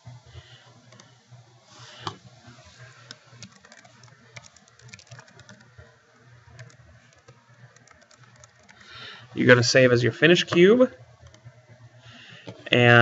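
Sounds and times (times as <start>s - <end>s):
typing on computer keyboard: 3.4s - 5.8s, 6.5s - 8.9s.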